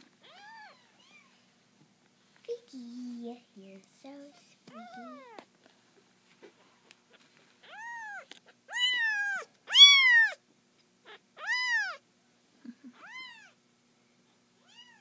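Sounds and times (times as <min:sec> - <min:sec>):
kitten meowing: 0:00.2 - 0:01.3, 0:04.7 - 0:05.4, 0:07.6 - 0:10.4, 0:11.1 - 0:12.0, 0:13.0 - 0:13.6, 0:14.6 - 0:15.0.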